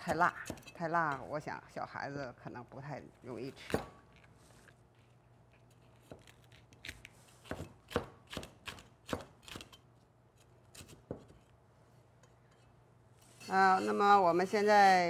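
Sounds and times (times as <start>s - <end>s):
knife chopping on wooden board: 7.4s - 9.6s.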